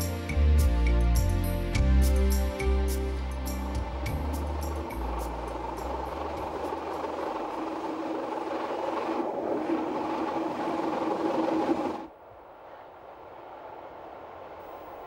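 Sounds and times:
train hum: 0.0s - 15.0s
distant train: 1.8s - 15.0s
train wheels rumbling on rails: 2.9s - 12.1s.

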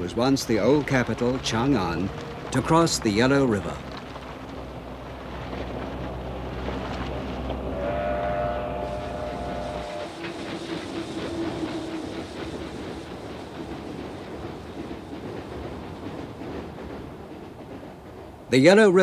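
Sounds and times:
train rumbling on rails: 0.0s - 19.0s
wheels clacking over rail joints: 0.0s - 19.0s
long steady tone: 7.7s - 10.5s.

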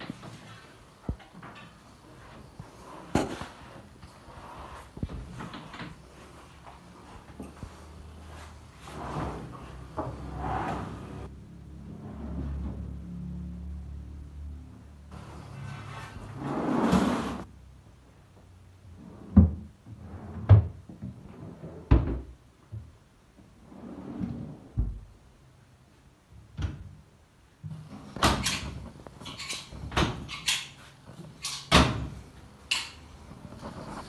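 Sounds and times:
drawer sliding: 8.3s - 11.3s, 15.2s - 17.5s.

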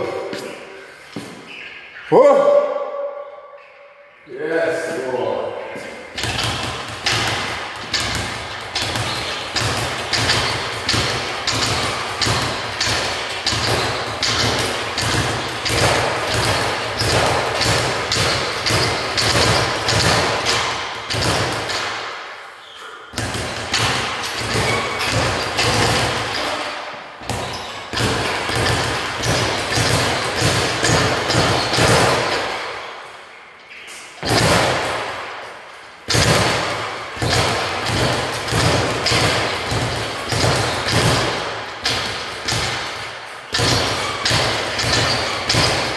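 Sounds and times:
speed bag drumming: 6.2s - 21.9s, 23.2s - 26.6s, 27.2s - 32.5s, 36.1s - 45.9s.

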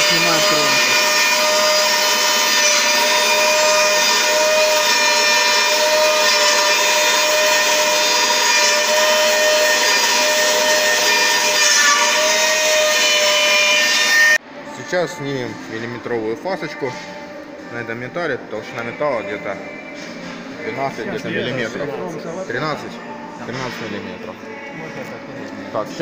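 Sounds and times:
cutter milling steel: 0.0s - 14.4s
milling machine whine: 0.0s - 14.4s.

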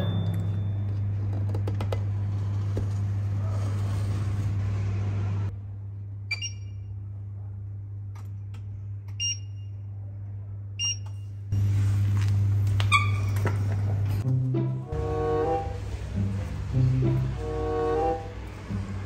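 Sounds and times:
short electronic beeps: 6.3s - 6.8s.

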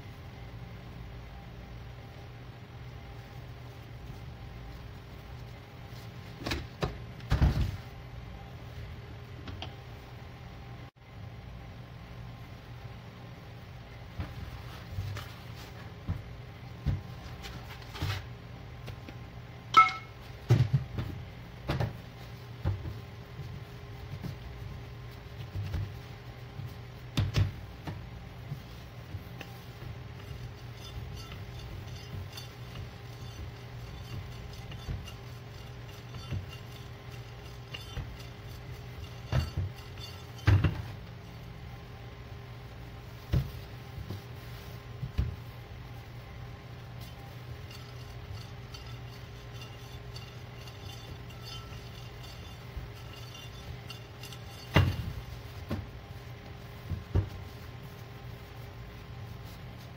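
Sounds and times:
steady low hum: 0.0s - 59.9s
rolling pin rolling dough on metal: 20.4s - 41.6s, 43.0s - 59.9s
dough thumping on steel counter: 27.1s - 28.0s, 39.0s - 41.0s, 49.8s - 55.9s.

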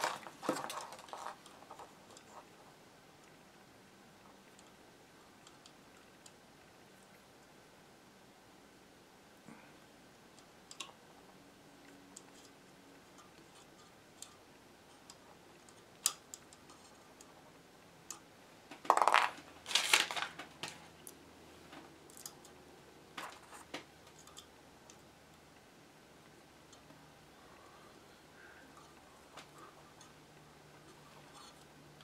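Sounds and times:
scraping and rustling: 0.0s - 2.6s, 18.7s - 22.4s.

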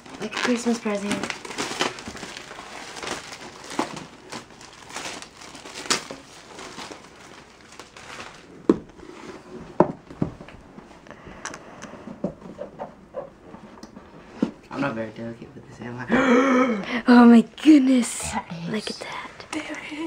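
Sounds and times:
plastic wrap crinkling and tearing: 0.0s - 8.8s.

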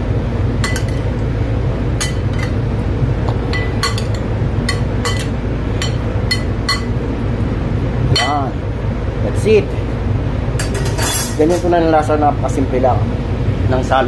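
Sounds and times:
steady low hum: 0.0s - 14.0s
metal spoon clinking on glass bowl: 3.5s - 6.9s.

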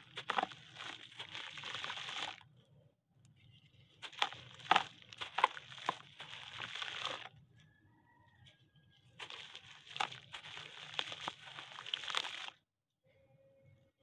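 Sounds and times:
dry dirt crumbling and cracking: 0.0s - 2.6s, 3.9s - 7.4s, 9.0s - 12.6s.

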